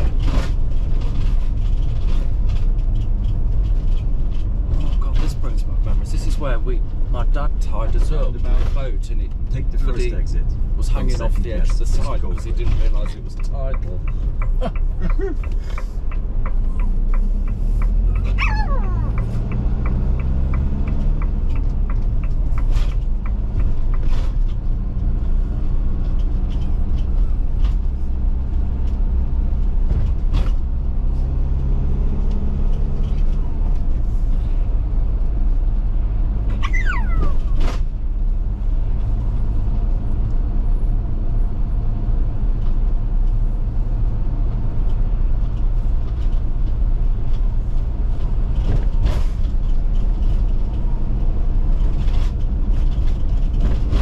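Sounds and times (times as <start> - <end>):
engine and road rumble: 0.0 - 54.0
dog whining: 18.0 - 19.3, 36.5 - 37.8.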